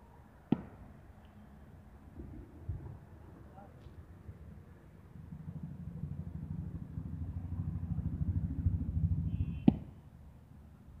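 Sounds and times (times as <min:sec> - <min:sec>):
low fluttering rumble: 0:02.1 - 0:09.6
bat hitting cricket ball: 0:09.6 - 0:10.0.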